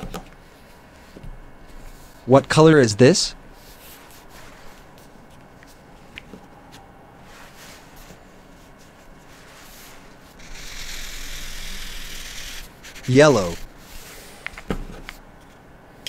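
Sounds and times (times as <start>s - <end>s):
hand rustling paper: 7.3s - 14.4s
highlighter scratching on paper: 7.4s - 14.3s.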